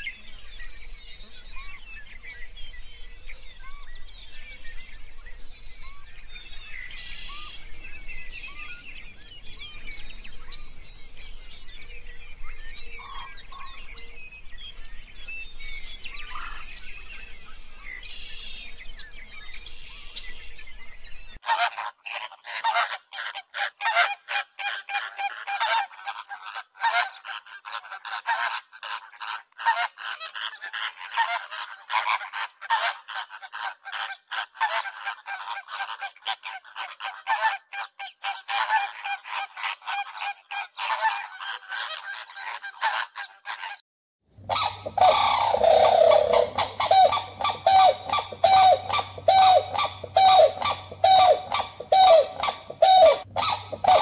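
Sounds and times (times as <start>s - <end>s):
small birds chirping: 0.0s - 21.4s, 44.4s - 54.0s
flamingos honking: 44.5s - 54.0s.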